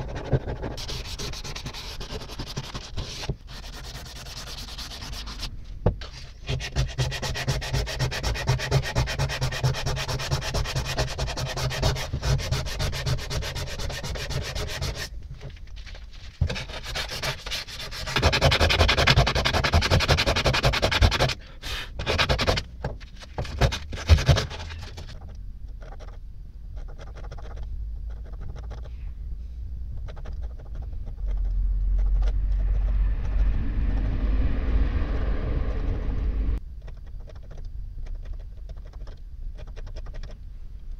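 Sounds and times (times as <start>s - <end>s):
sandpaper rubbing on steel rod: 0.0s - 15.1s, 16.5s - 21.4s
steady low hum: 21.4s - 40.9s.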